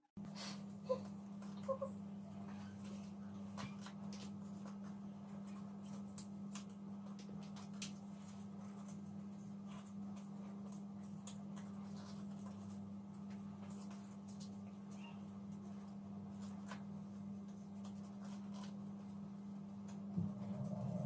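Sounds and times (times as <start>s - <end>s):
low hum: 19.8s - 21.0s.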